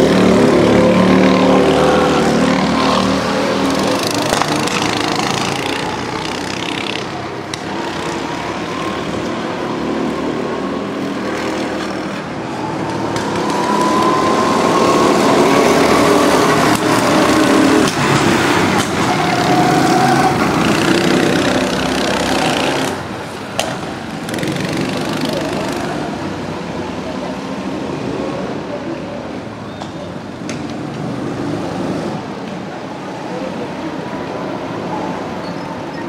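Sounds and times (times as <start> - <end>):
go-kart accelerating: 0.0 - 36.0
go-kart engines running: 0.0 - 36.0.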